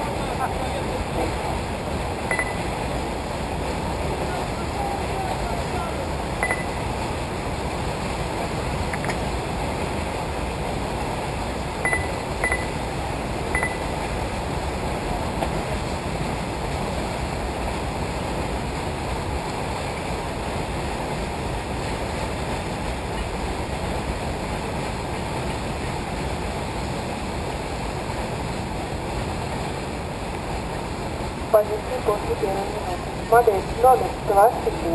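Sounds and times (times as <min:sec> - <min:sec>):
short high beeps: 0:02.3 - 0:02.7, 0:06.4 - 0:06.8, 0:11.8 - 0:12.8, 0:13.5 - 0:13.9.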